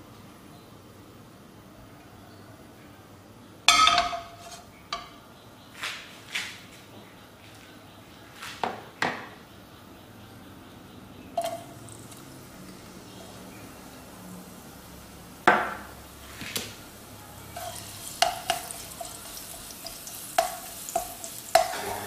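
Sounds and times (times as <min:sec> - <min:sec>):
wok scraping on grate: 0:03.7 - 0:04.8, 0:11.4 - 0:14.1, 0:15.7 - 0:22.0
wok knocking on metal grate: 0:03.7 - 0:05.2, 0:15.5 - 0:15.9, 0:18.0 - 0:22.0.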